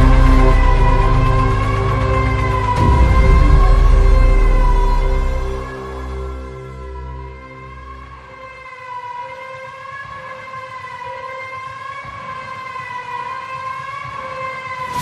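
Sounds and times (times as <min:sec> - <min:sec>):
wavering synth tone: 0:00.0 - 0:08.0
low pulsing beat: 0:00.0 - 0:15.0.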